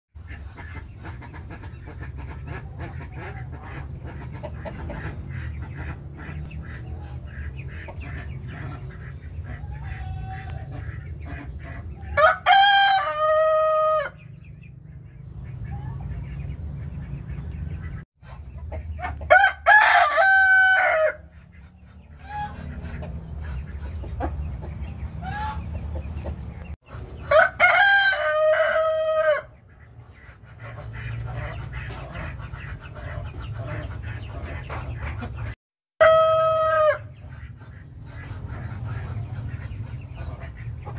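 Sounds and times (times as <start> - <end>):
chicken clucking: 0.2 - 40.9
rooster crowing: 12.2 - 14.2, 19.3 - 21.2, 27.3 - 29.5, 36.0 - 37.1.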